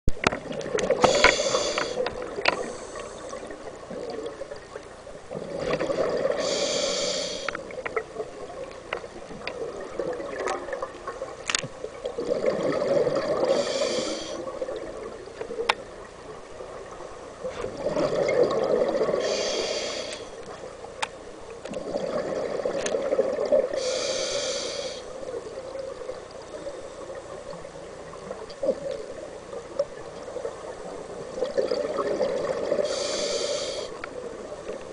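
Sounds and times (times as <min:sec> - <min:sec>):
regulator inhale hiss: 0:01.0 - 0:03.6, 0:06.4 - 0:07.6, 0:13.5 - 0:14.5, 0:19.2 - 0:20.5, 0:23.8 - 0:25.2, 0:32.8 - 0:34.1.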